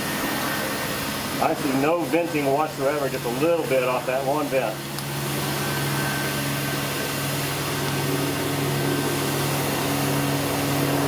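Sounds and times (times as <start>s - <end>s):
gas burner and blower hum: 0.0s - 11.0s
higher hum: 0.0s - 11.0s.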